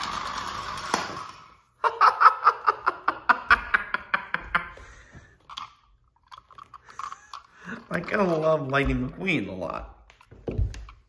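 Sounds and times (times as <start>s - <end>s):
toy car motor whirring: 0.0s - 1.5s, 5.5s - 8.4s
person laughing: 1.8s - 5.1s.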